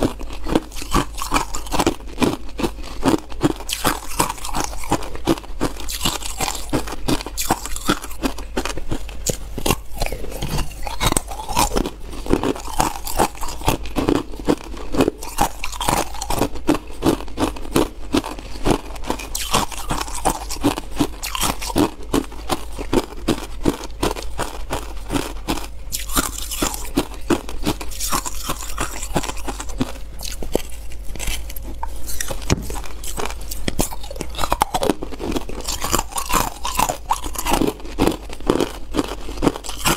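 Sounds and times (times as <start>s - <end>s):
ice crunching in mouth: 0.0s - 39.9s.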